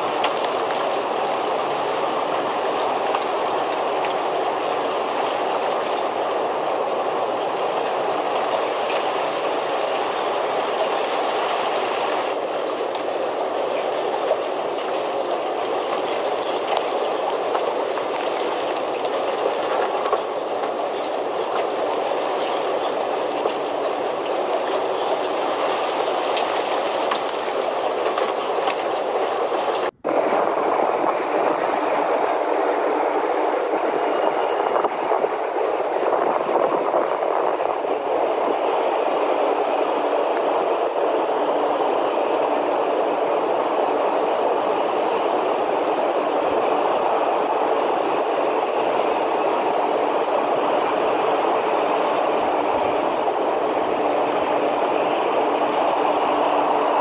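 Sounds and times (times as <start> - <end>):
rain drop taps: 0.0 - 30.0
steady rain falling: 0.0 - 57.0.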